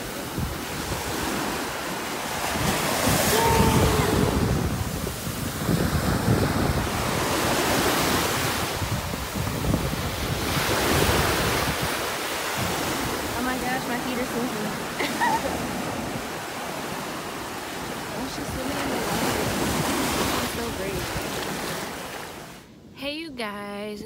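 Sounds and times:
small surf washing over sand: 0.0 - 22.7
wind buffeting microphone: 0.0 - 22.9.

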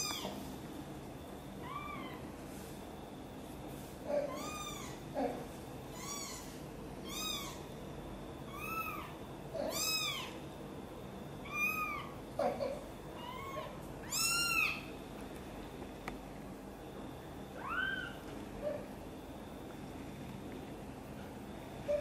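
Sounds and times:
kitten mewing: 8.5 - 10.4.

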